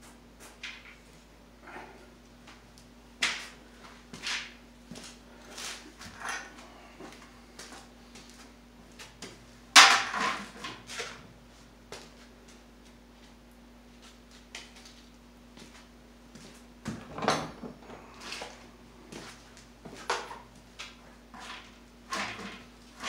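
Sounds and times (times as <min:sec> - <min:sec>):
faint steady hum: 0:00.0 - 0:23.0
objects knocking and clattering: 0:09.8 - 0:10.9.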